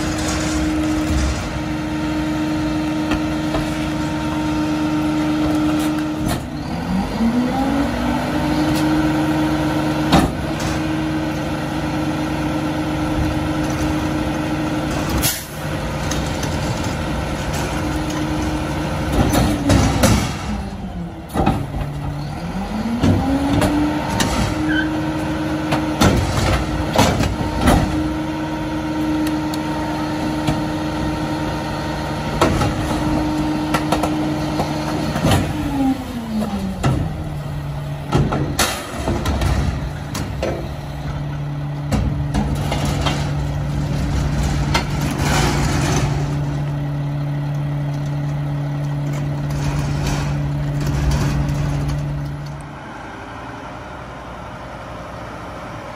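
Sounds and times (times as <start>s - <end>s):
diesel truck engine revving: 0.0s - 55.9s
metallic clanks and bangs: 19.0s - 20.6s, 38.0s - 46.8s.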